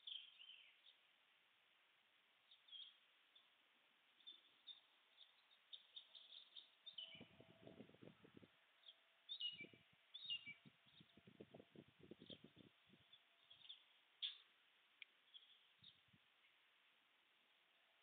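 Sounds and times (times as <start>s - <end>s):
faint small birds chirping: 0.0s - 18.0s.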